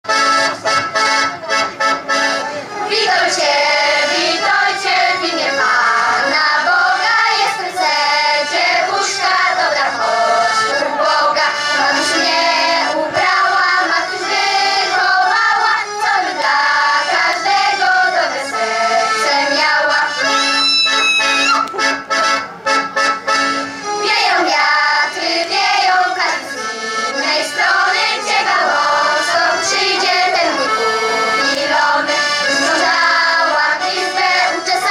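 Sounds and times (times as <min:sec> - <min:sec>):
children's choir singing amplified: 0:00.1 - 0:34.9.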